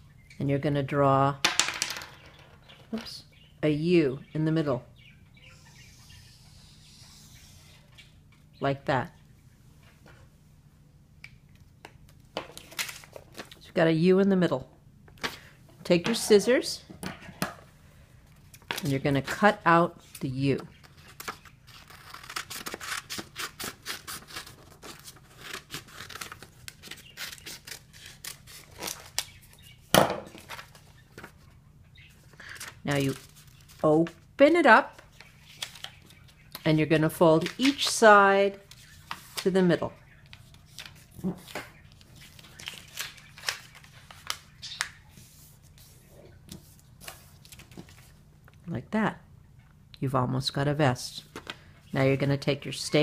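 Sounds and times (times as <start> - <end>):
paper being folded and creased: 20.8 - 29.3, 32.3 - 34.2, 34.9 - 36.4, 37.4 - 38.0, 40.3 - 48.2
scissors snipping paper: 21.2 - 29.3
paper rustle: 32.2 - 33.8, 40.3 - 48.2.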